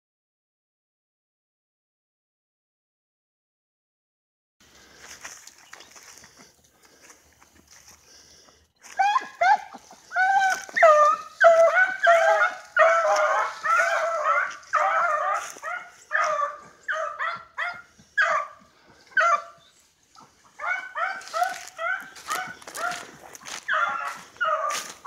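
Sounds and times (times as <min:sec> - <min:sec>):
hounds baying: 0:08.8 - 0:25.0.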